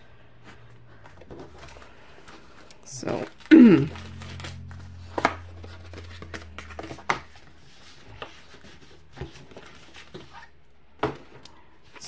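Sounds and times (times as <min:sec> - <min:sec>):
low steady hum: 0:00.0 - 0:12.0
light rustling of cardstock and plastic: 0:07.7 - 0:12.0.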